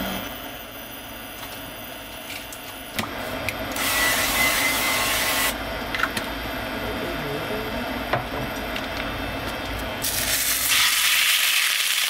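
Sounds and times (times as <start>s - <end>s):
frying pan sizzling: 10.0s - 12.0s.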